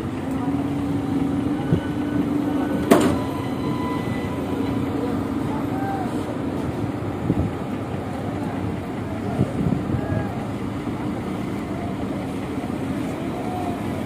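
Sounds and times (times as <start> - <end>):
diesel engine rumble: 0.0 - 14.0
wind buffeting microphone: 6.4 - 11.5.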